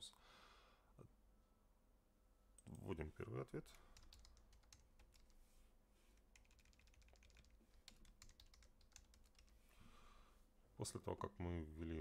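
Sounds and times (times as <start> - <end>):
faint keyboard typing: 3.6 - 5.4, 6.2 - 9.6.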